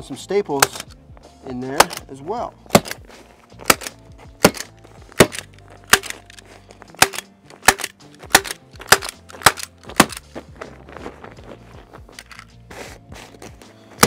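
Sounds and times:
hand stapler snapping: 0:00.6 - 0:01.0, 0:01.8 - 0:02.1, 0:02.7 - 0:03.0, 0:03.6 - 0:06.4, 0:07.0 - 0:10.2.

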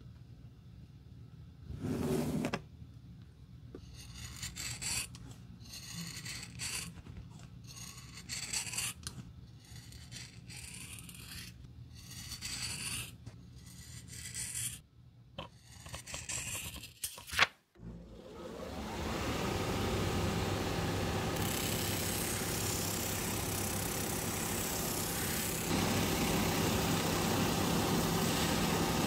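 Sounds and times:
shears cutting rubber: 0:21.2 - 0:29.0.

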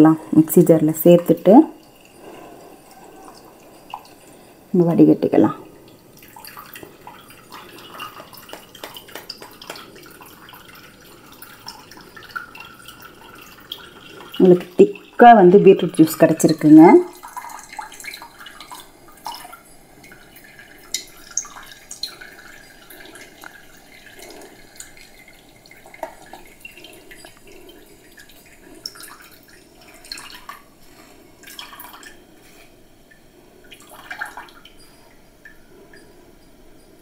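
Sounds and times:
juice dripping into cup: 0:00.2 - 0:37.0.

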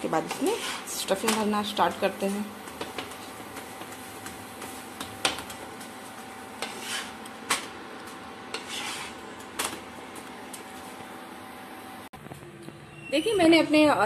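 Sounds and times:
spatula scraping a pan: 0:00.0 - 0:01.4, 0:06.5 - 0:07.3, 0:08.5 - 0:09.3.

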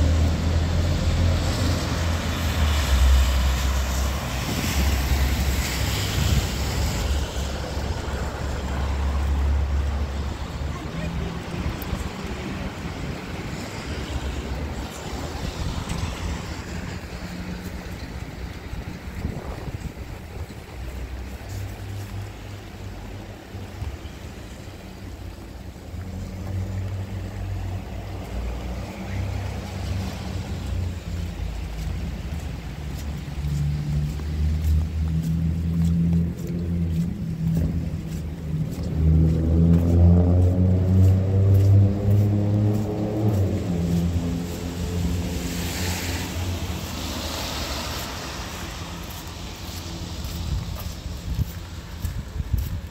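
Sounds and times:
low rumble of traffic: 0:00.0 - 0:52.9
hiss of rain on wet asphalt: 0:00.2 - 0:10.8, 0:42.1 - 0:52.9.

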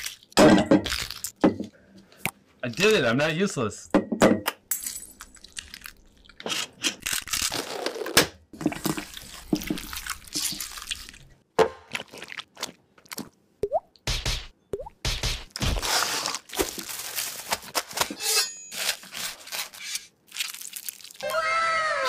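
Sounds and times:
wet squelching of mashed eggs: 0:00.0 - 0:01.4, 0:08.6 - 0:13.4, 0:20.2 - 0:21.5.

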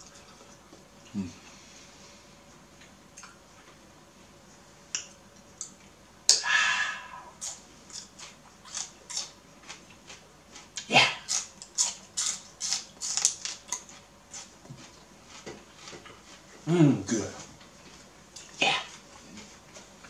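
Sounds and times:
crisp crunches of chewing: 0:07.3 - 0:16.5
celery tearing: 0:07.4 - 0:09.8, 0:10.6 - 0:14.5.

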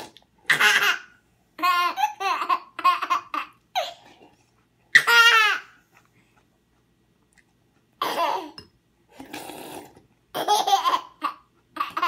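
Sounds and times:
toddler laughing: 0:10.4 - 0:12.0.

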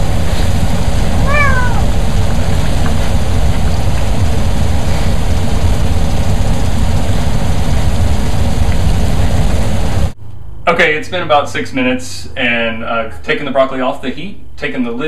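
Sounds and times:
loud steady rumbling noise: 0:00.0 - 0:13.1
cat meowing: 0:01.2 - 0:02.0.

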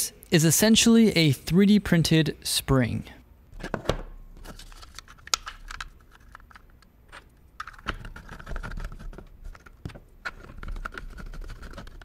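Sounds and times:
plastic parts scraping: 0:04.4 - 0:12.0
plastic parts clicking: 0:04.5 - 0:12.0.

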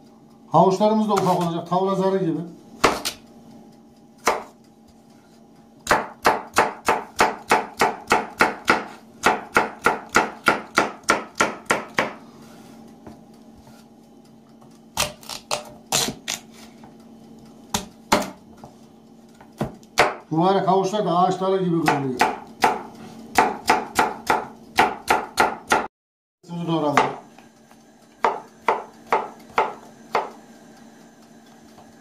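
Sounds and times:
knife chopping carrot on board: 0:02.8 - 0:03.2, 0:04.2 - 0:04.6, 0:05.8 - 0:12.2, 0:19.6 - 0:20.2, 0:21.8 - 0:25.9, 0:28.2 - 0:30.4.

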